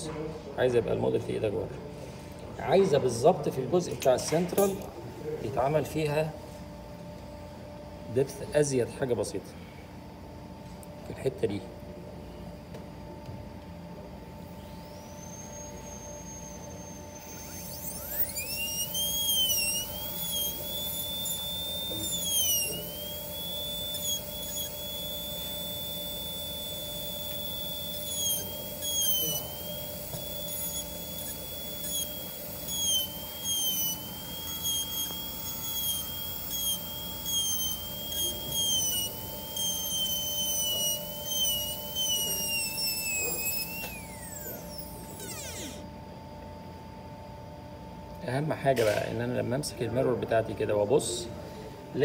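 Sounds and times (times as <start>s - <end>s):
dental drill whining: 14.4s - 46.0s.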